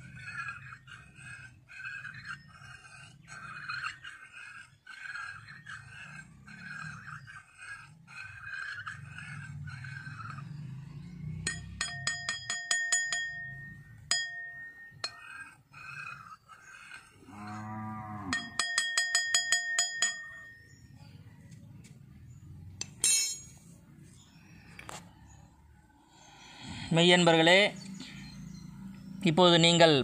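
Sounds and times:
small bell ringing rapidly: 11.5s - 15.2s, 18.3s - 20.6s
cow mooing: 17.1s - 18.6s.

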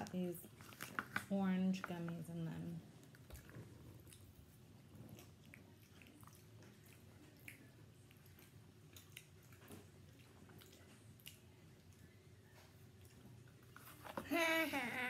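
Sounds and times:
child chewing gummy candies: 2.9s - 14.1s.

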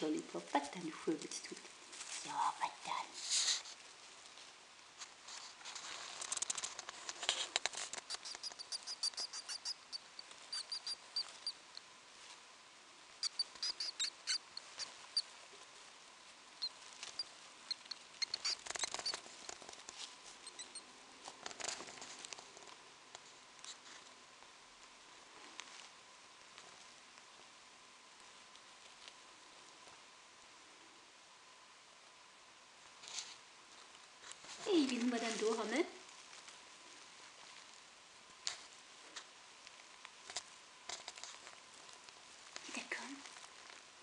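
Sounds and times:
rustling of bedding: 0.0s - 8.1s, 32.9s - 44.0s
mouse pups squeaking: 6.2s - 11.6s, 13.2s - 15.3s, 16.6s - 21.8s.

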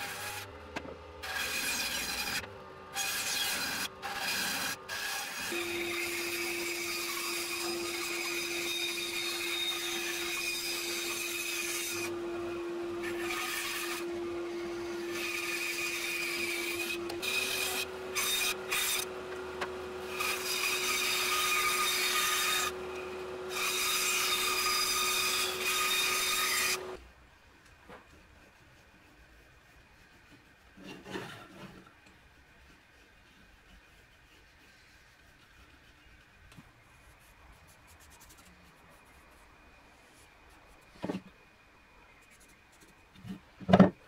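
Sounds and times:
saw blade rasping through wood: 1.2s - 27.0s.

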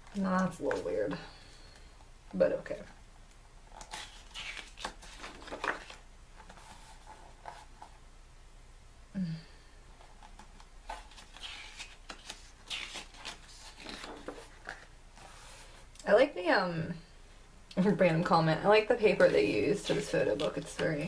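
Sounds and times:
book pages turning and rustling: 0.0s - 1.0s, 3.6s - 8.0s, 10.0s - 15.9s, 19.0s - 21.0s.

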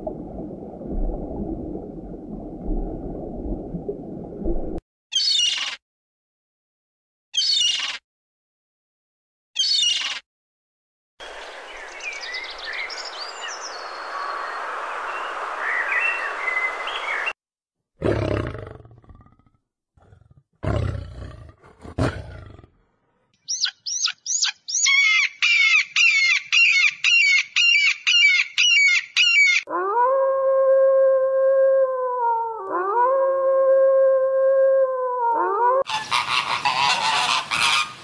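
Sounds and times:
bird calling in fast series: 5.1s - 5.8s, 7.4s - 8.0s, 9.6s - 10.2s, 23.4s - 29.7s
high bird chirps: 9.6s - 10.2s, 23.4s - 29.6s
lion roaring: 18.0s - 22.9s.

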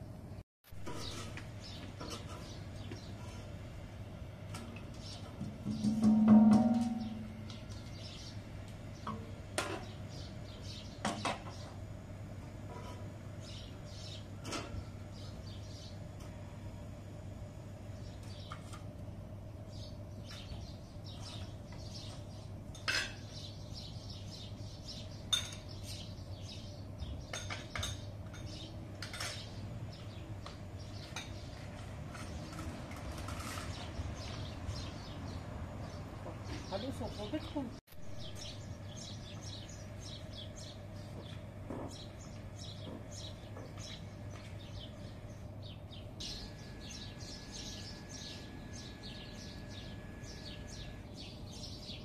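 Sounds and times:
low steady hum: 0.0s - 52.0s
metal trays and bowl clinking: 5.7s - 7.3s.

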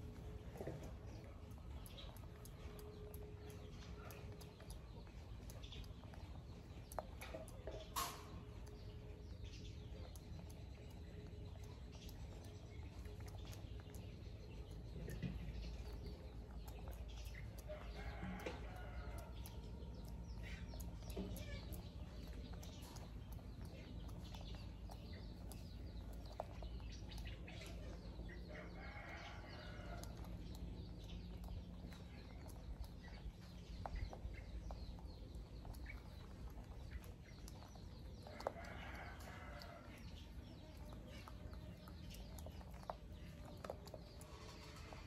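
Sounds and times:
small finger clicks: 0.3s - 28.5s.

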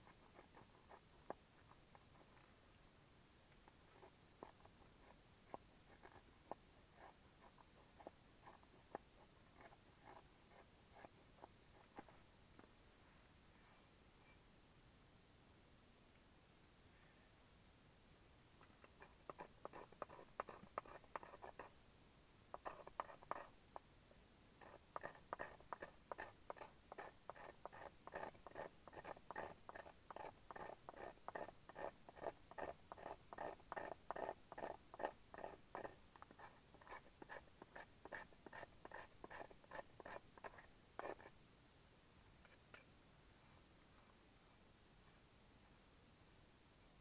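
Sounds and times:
knife scraping wood: 18.7s - 21.8s, 22.6s - 23.5s, 24.6s - 41.4s.

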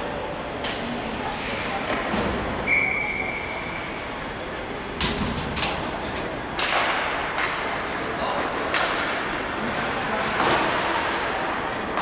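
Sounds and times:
referee's whistle: 2.6s - 3.5s
hockey sticks and puck clacking: 6.6s - 12.0s.

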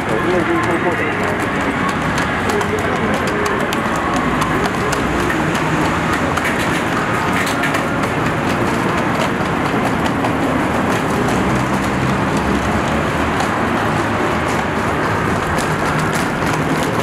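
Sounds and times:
city traffic hum: 0.0s - 17.0s
footsteps clicking on pavement: 0.0s - 17.0s.

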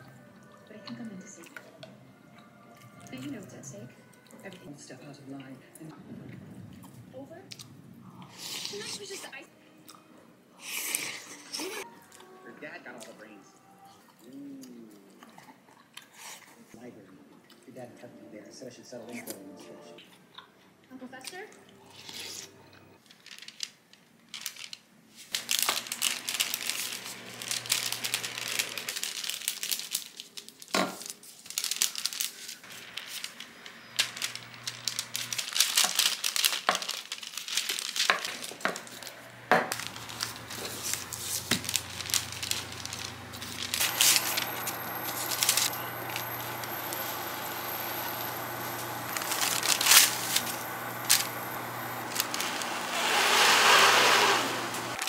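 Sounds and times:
paper crinkling and rustling: 23.0s - 55.0s
can rolling over paper: 25.3s - 55.0s
hum with high whine: 32.6s - 35.5s, 38.4s - 55.0s
crackles and taps: 33.1s - 43.9s.

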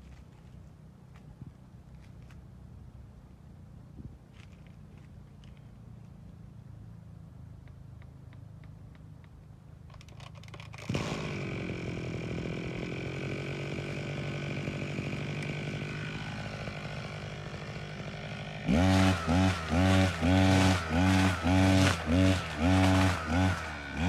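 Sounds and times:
brush cutter engine running: 9.9s - 24.0s.

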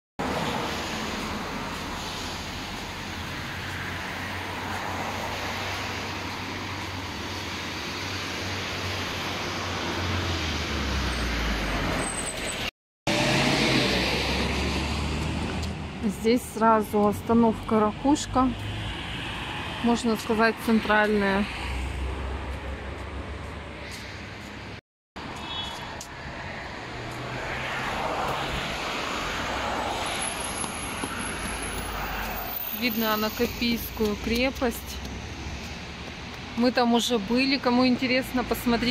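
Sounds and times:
road traffic passing: 0.2s - 38.9s
motor vehicle rushing past: 8.0s - 16.0s.

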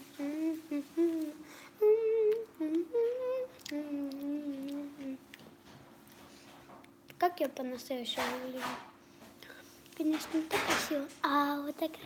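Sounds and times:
girl humming a tune: 0.0s - 5.3s.

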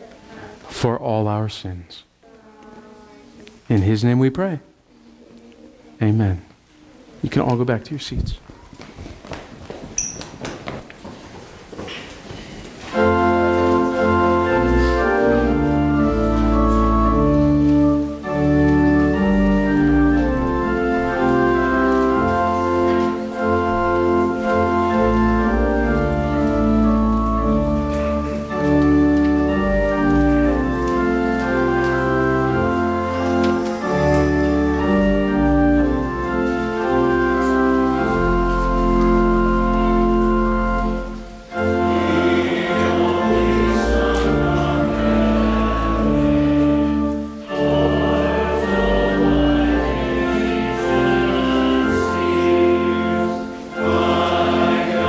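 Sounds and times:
church organ chords: 12.8s - 55.0s.

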